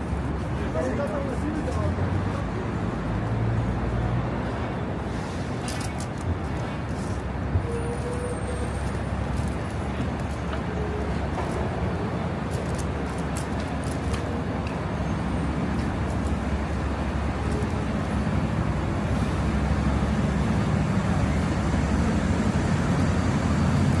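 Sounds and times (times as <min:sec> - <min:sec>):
traffic rumble: 0:00.0 - 0:24.0.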